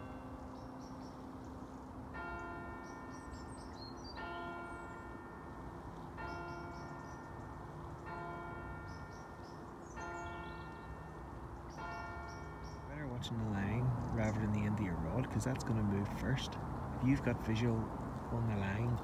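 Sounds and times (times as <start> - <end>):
church bell striking: 0.0 - 1.1, 2.1 - 13.8
birds chirping faintly: 0.0 - 19.0.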